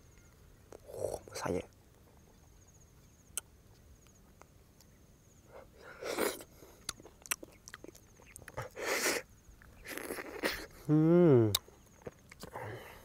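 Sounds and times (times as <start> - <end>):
wet mouth and fruit sounds: 5.9 - 12.6.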